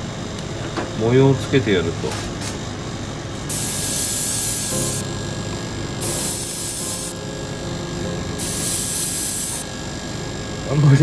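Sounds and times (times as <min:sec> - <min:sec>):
airbrush spraying: 0:03.5 - 0:05.0, 0:06.0 - 0:07.2, 0:08.4 - 0:09.6.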